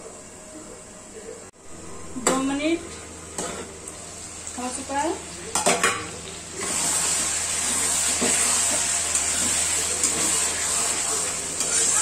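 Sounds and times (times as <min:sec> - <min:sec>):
food sizzling in a metal pan: 0:02.3 - 0:12.0
spatula scraping a pan: 0:06.6 - 0:12.0.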